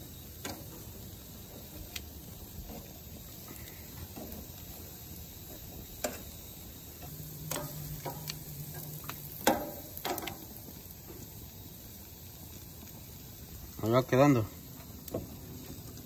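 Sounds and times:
meat sizzling: 0.0 - 16.0
metal tongs clacking on grill grates: 0.4 - 0.8, 5.9 - 6.4, 7.0 - 10.6.

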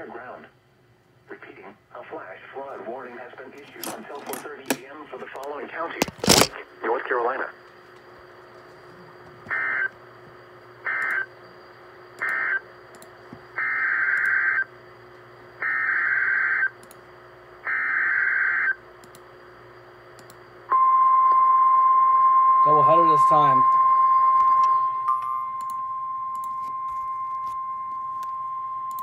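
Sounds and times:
radio hiss: 1.3 - 7.6
steady warning alarm tone: 8.9 - 12.8, 13.5 - 14.7, 15.6 - 16.8, 17.7 - 18.8, 20.7 - 29.0.

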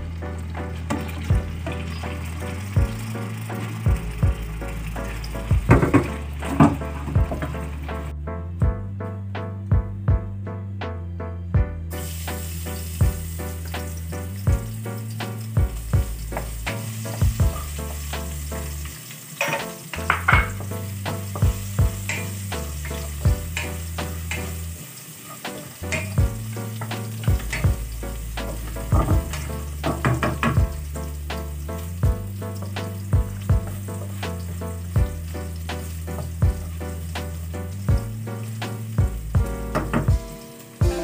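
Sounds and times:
food sizzling in oil: 0.0 - 8.1, 11.9 - 41.0
background music: 0.0 - 41.0.

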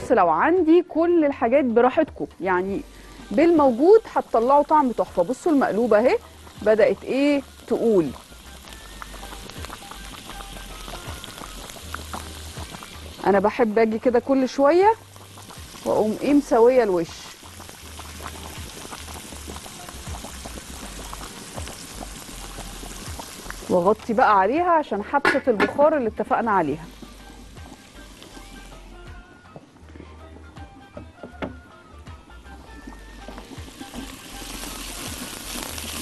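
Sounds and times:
soft background music: 0.0 - 36.0
onion sizzling in fat: 1.8 - 29.3, 32.3 - 36.0
liquid bubbling and popping: 6.2 - 13.6, 14.2 - 24.3, 26.6 - 28.8, 32.5 - 36.0.

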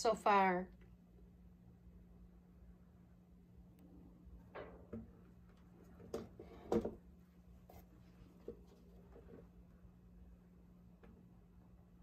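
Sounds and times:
steady low hum: 0.0 - 12.0
panel knocking and scraping: 5.8 - 7.0.

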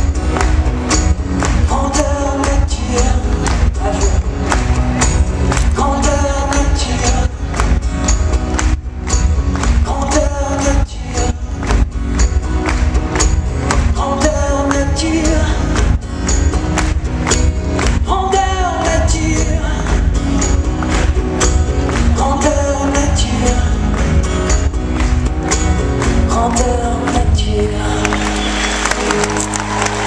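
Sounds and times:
acoustic guitars: 0.0 - 30.0
man singing: 1.4 - 7.8, 9.6 - 11.9, 13.7 - 16.4, 17.8 - 20.7, 21.8 - 25.0, 26.0 - 28.5.

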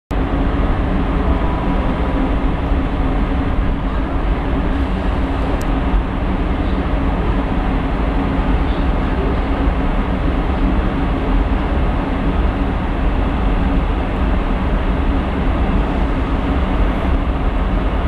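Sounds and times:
locomotive blowers droning: 0.3 - 6.0.

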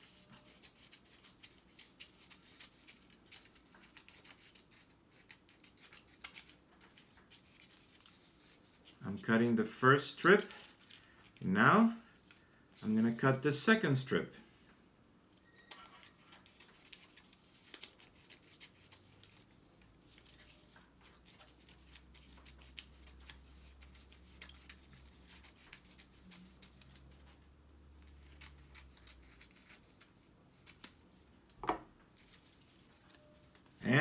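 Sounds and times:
scissors snipping paper: 0.0 - 9.0, 15.6 - 27.3, 28.0 - 31.0
paper rustling: 0.0 - 11.4, 15.7 - 27.4, 32.1 - 34.0.

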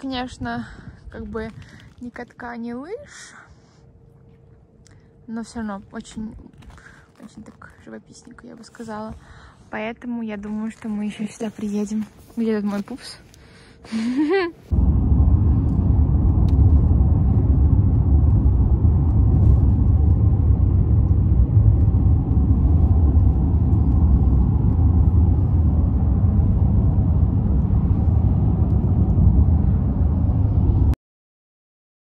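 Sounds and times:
car road rumble inside cabin: 14.7 - 31.0.

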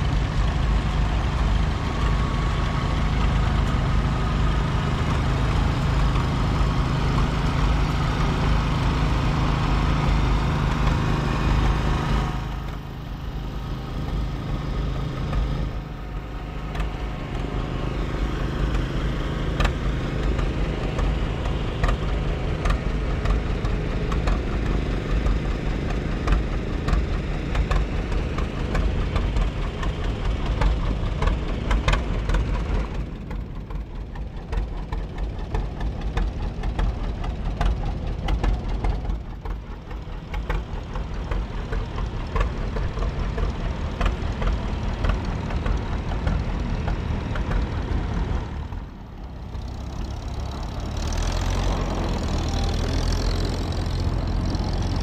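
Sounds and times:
tractor engine droning by: 0.0 - 55.0
tractor engine with exhaust pops: 0.0 - 55.0.

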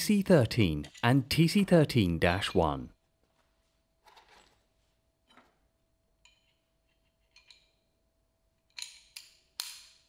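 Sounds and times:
metal tools clinking: 4.0 - 4.7, 6.2 - 7.9.

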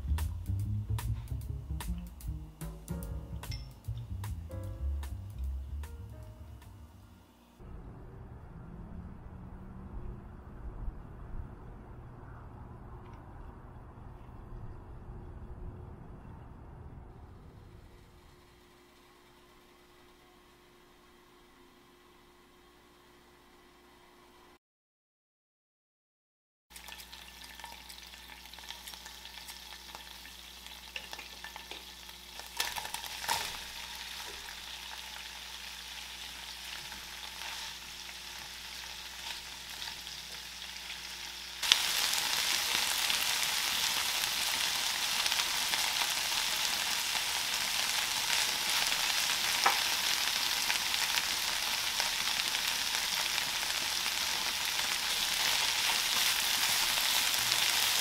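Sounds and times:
cabbage stir-frying: 0.0 - 6.4, 26.7 - 58.0
oil sizzling in frying pan: 0.0 - 6.6, 26.7 - 58.0.

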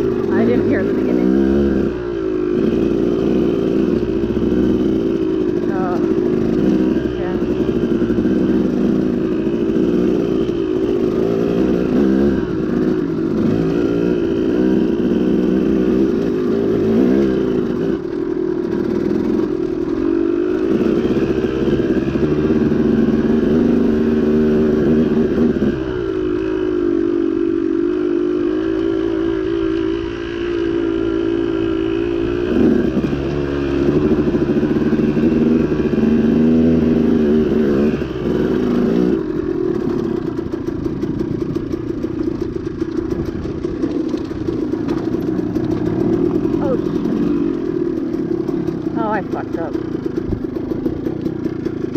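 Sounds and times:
two-stroke dirt bike engine revving: 0.0 - 51.9.

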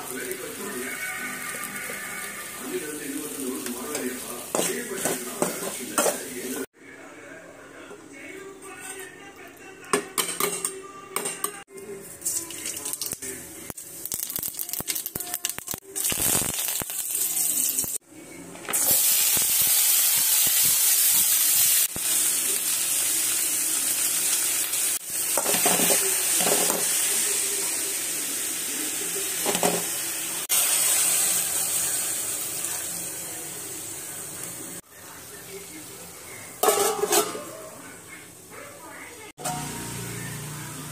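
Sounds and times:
beans sizzling in a hot pan: 0.0 - 6.7, 12.3 - 18.0, 18.7 - 35.3
spatula stirring: 3.6 - 6.6
metal ladle scraping a steel pot: 36.6 - 37.5.

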